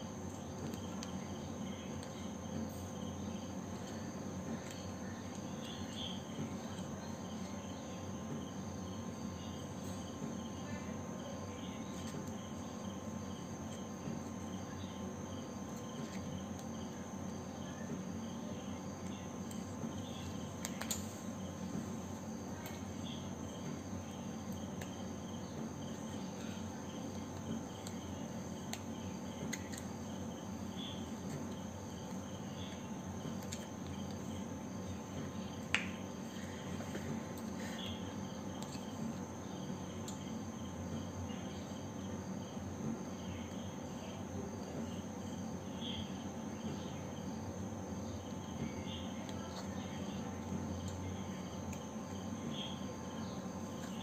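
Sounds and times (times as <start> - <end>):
background hiss and hum: 0.0 - 54.0.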